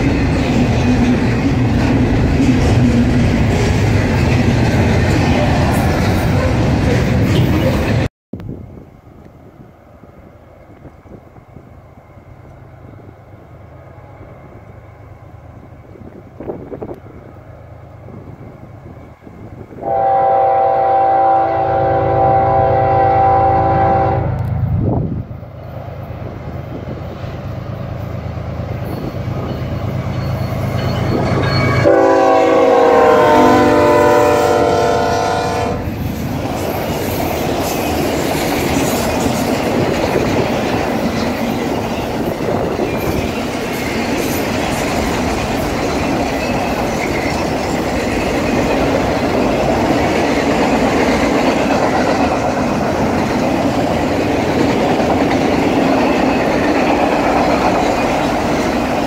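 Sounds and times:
train wheels rolling on rails: 0.0s - 59.0s
locomotive horn blast: 19.8s - 24.6s, 31.8s - 35.9s.

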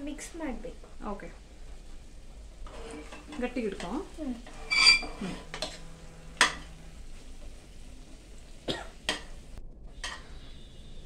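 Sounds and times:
spoon stirring in metal pan: 2.6s - 6.8s.

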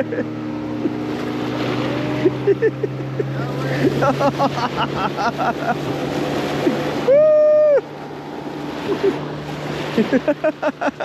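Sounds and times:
person yelling loudly: 7.0s - 7.8s
excited voices shouting and laughing: 7.0s - 7.9s.

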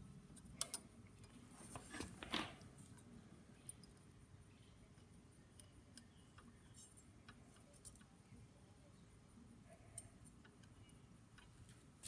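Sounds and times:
small metallic clicks: 0.3s - 1.4s.

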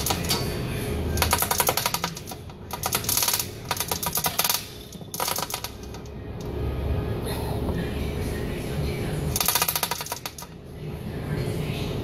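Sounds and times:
ratchet wrench clicking: 1.2s - 6.0s, 9.4s - 10.5s.

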